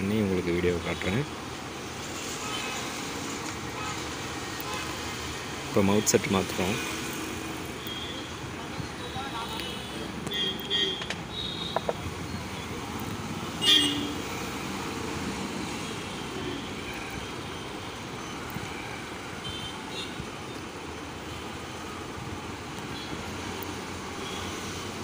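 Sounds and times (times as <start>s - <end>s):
road traffic noise: 0.0s - 25.0s
vehicle horn toot: 9.0s - 11.9s, 13.6s - 14.2s.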